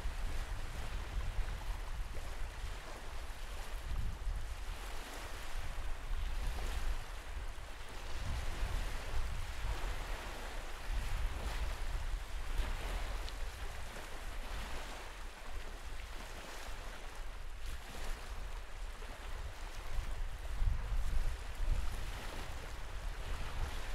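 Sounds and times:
wind buffeting microphone: 0.0s - 15.1s, 19.0s - 23.9s
small waves washing on shore: 0.0s - 23.9s.

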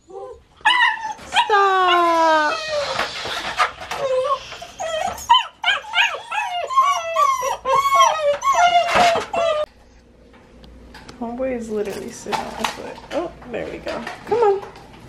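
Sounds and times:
puppies whining and whimpering: 0.0s - 9.7s.

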